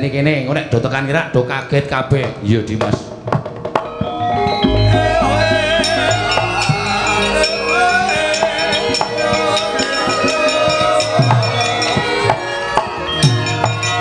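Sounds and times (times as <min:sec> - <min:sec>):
metallophones and gongs ringing: 0:03.8 - 0:14.0
deep falling drum strokes: 0:04.6 - 0:09.1
sharp percussive strokes: 0:04.6 - 0:12.4.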